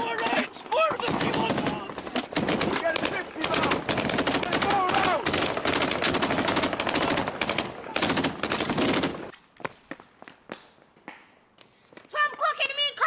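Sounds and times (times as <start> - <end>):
rapid automatic gunfire: 0.0 - 9.3.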